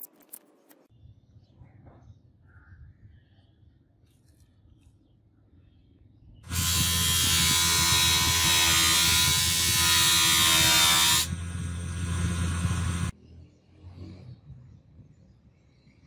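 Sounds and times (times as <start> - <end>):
bench grinder grinding blade: 6.5 - 13.1
grinder motor humming: 6.5 - 13.1.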